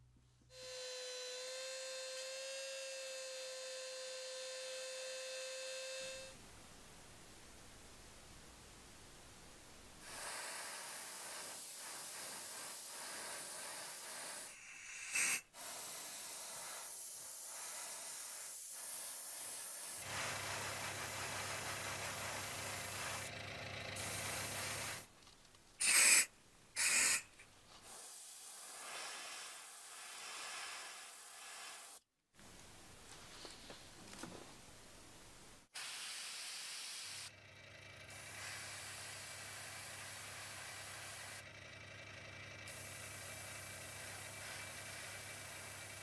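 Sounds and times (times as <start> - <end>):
air blasts: 10.0 - 23.3, 24.0 - 25.1, 25.8 - 32.0, 35.6 - 37.3, 38.1 - 41.4
airbrush hissing: 10.0 - 23.3, 24.0 - 25.1, 25.8 - 32.0, 38.1 - 41.4.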